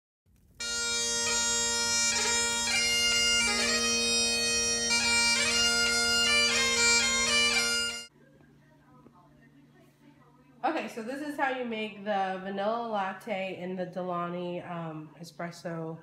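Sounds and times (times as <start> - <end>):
bagpipe music: 0.6 - 8.1.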